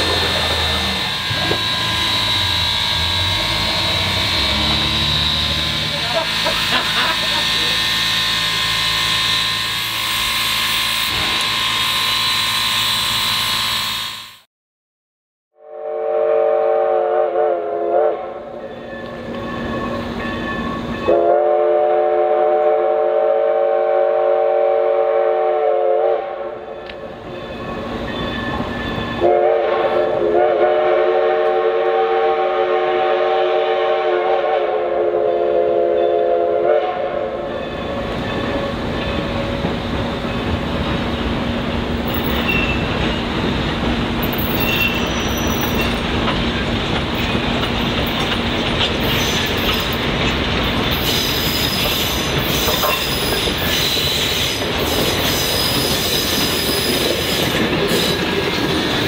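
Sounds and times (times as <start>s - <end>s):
train rumble and clatter: 0.0s - 13.8s, 18.0s - 22.8s, 26.5s - 59.0s
steam locomotive whistle: 0.0s - 14.4s, 15.6s - 18.6s, 21.0s - 26.8s, 29.1s - 38.8s.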